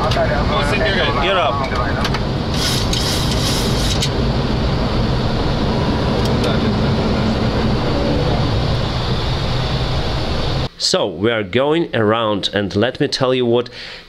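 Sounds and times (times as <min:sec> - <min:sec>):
jet engines: 0:00.0 - 0:10.7
rushing airflow: 0:00.0 - 0:10.7
bursts of hiss: 0:02.5 - 0:04.1.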